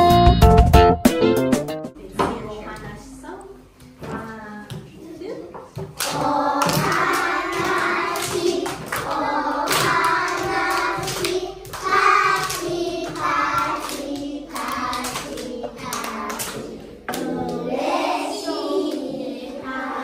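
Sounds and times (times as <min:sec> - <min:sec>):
children clapping: 0:06.0 - 0:17.8
children singing: 0:06.0 - 0:20.0.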